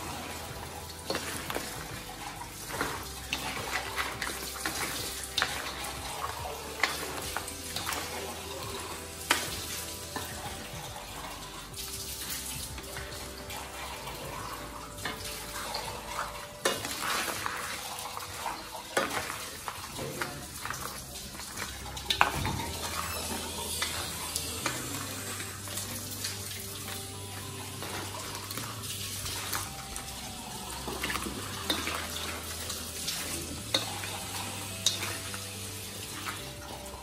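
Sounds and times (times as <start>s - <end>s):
sizzling in a wok: 0.0s - 37.0s.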